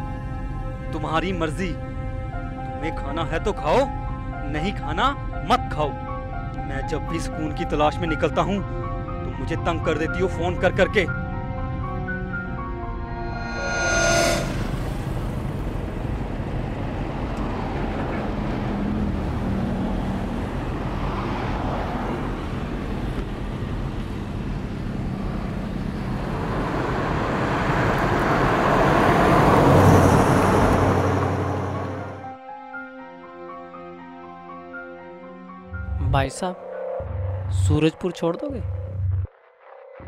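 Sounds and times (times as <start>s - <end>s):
car engine and road noise: 11.2s - 32.4s.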